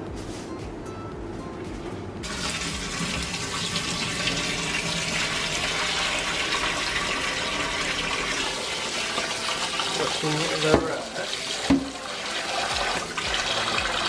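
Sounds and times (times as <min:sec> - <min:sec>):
tap running into bowl: 0:02.3 - 0:03.6, 0:10.5 - 0:12.0.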